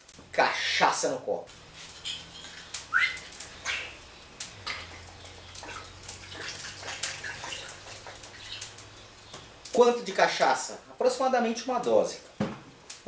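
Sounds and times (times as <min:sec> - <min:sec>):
liquid trickling over ice: 0:04.6 - 0:10.5.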